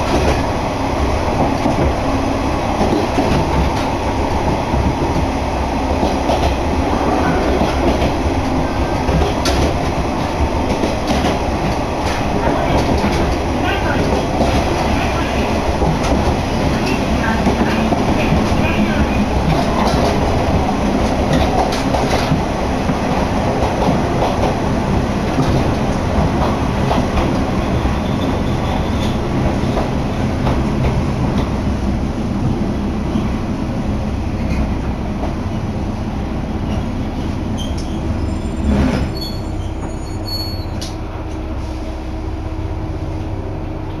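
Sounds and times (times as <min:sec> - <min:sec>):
railcar wheels and engine rumble: 0:00.0 - 0:44.0.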